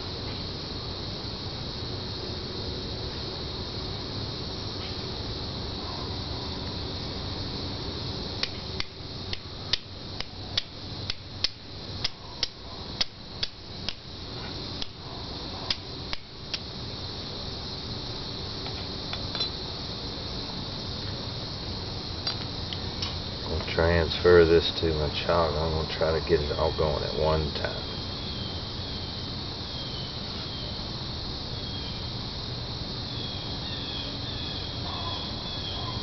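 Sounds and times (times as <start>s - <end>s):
steel striker clicking on flint: 8.4s - 14.0s, 14.8s - 15.0s, 15.7s - 16.7s.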